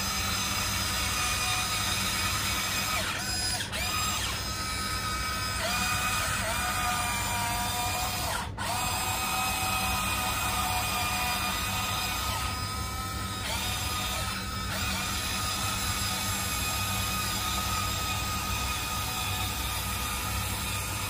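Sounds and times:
electric motors whining: 0.0 - 21.0.

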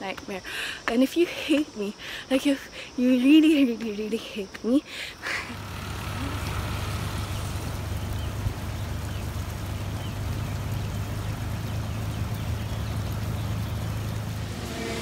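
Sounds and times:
low rumble: 13.8 - 15.0
steam venting hiss: 13.8 - 15.0.

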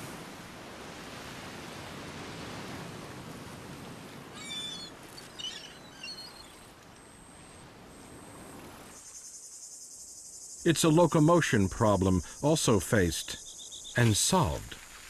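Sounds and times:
high bird chirps: 4.4 - 6.6, 13.4 - 14.0
steady background hiss: 5.5 - 15.0
high insect trill: 8.2 - 15.0.

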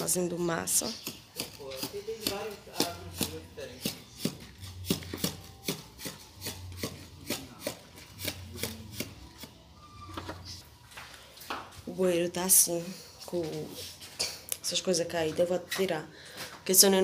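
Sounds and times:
shovel chopping and scraping mortar: 0.6 - 9.6.

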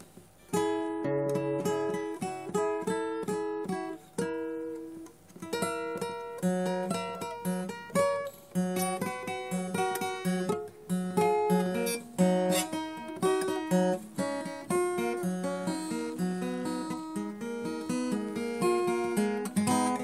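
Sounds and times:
acoustic guitar music: 0.0 - 20.0.

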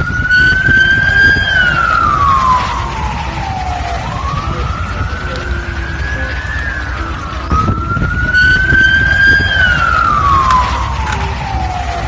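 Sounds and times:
ambulance siren wailing: 0.0 - 12.0
low rumble: 0.0 - 12.0.

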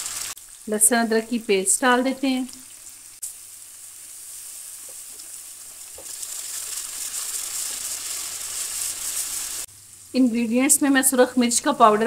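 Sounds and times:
vegetables sizzling in hot oil: 0.0 - 12.0
spatula stirring in pan: 3.9 - 9.7.

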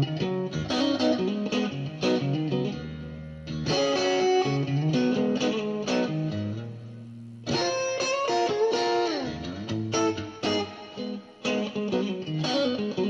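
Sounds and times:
guitar music with bass line: 0.0 - 13.0.

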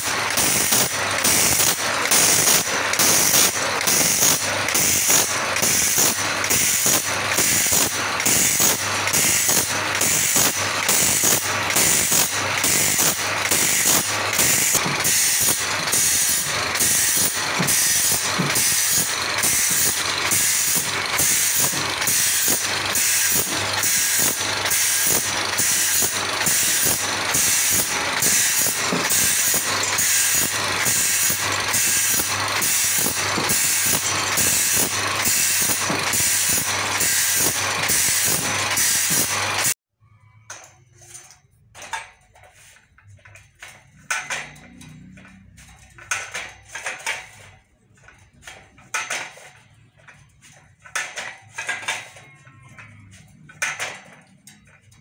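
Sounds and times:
grinding wheel on steel blade: 0.0 - 39.8, 42.4 - 55.0
machine motor hum: 0.0 - 39.8.

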